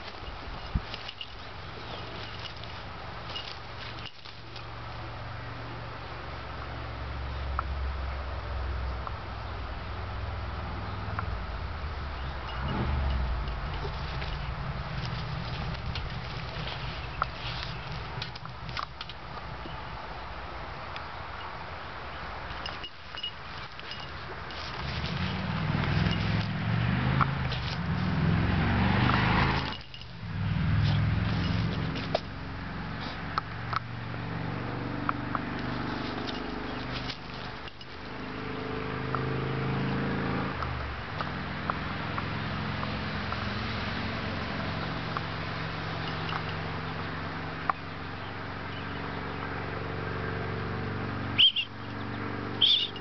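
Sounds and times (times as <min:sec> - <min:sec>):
fur scraping on ground: 0:13.6 - 0:18.4, 0:22.6 - 0:32.4
short high-pitched chirps: 0:51.4 - 0:51.7, 0:52.6 - 0:53.0.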